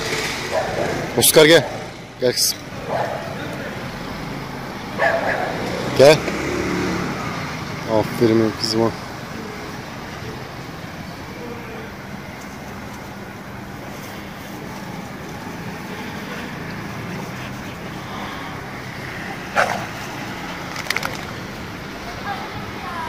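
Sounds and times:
road traffic with engine hum: 0:00.0 - 0:23.0
quick clicks: 0:20.6 - 0:21.4.

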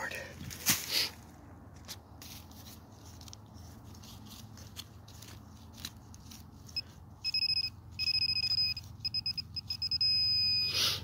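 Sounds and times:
digging in soil: 0:00.3 - 0:07.3
metal detector beeping: 0:06.7 - 0:11.0.

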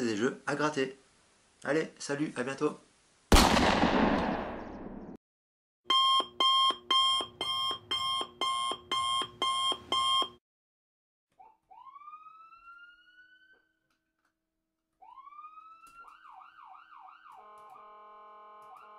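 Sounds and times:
electronic alarm clock beeping: 0:05.9 - 0:10.4
rising siren-like wail: 0:11.4 - 0:13.8, 0:15.0 - 0:18.9.

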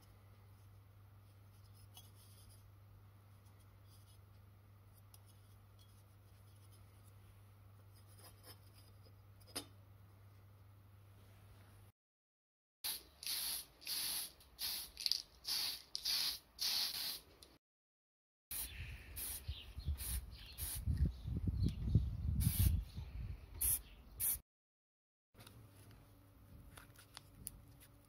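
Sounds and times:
aerosol spray can hissing: 0:12.9 - 0:17.2
wind buffeting microphone: 0:18.8 - 0:23.4.

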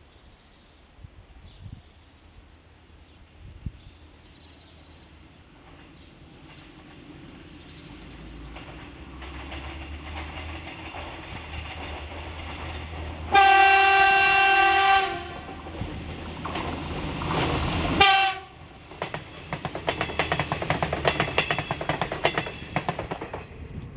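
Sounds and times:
train rumble: 0:03.1 - 0:23.9
wheels clacking over rail joints: 0:05.4 - 0:23.9
train horn blasts: 0:13.3 - 0:15.6, 0:18.0 - 0:18.7.

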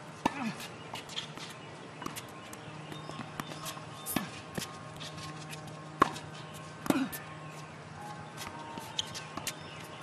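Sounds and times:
tennis ball bouncing on hard court: 0:00.2 - 0:07.2, 0:08.4 - 0:09.6
tennis ball struck by rackets: 0:06.0 - 0:07.2.

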